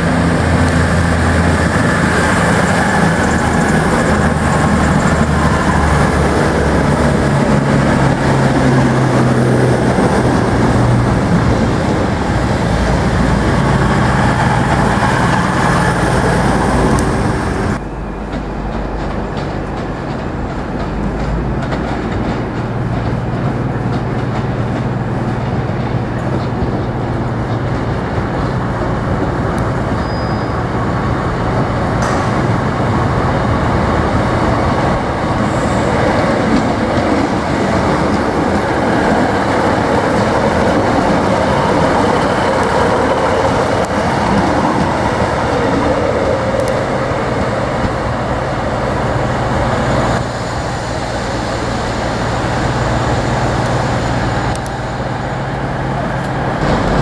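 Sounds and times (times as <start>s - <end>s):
train wheels rumbling: 0.0s - 57.0s
clatter over rail joints: 18.0s - 29.8s, 31.9s - 32.7s
diesel engine drone: 30.7s - 57.0s.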